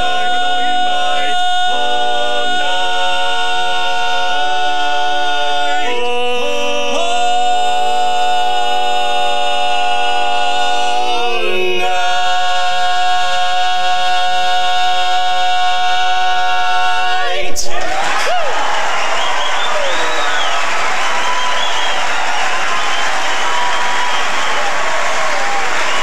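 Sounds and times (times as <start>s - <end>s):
male quartet singing a cappella: 0.0s - 18.3s.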